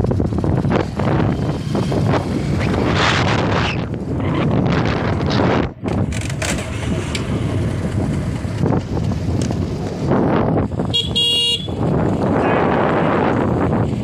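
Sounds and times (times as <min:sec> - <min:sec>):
motorcycle road noise: 0:00.0 - 0:14.0
wind buffeting microphone: 0:00.0 - 0:14.0
vehicle horn toot: 0:10.9 - 0:11.9.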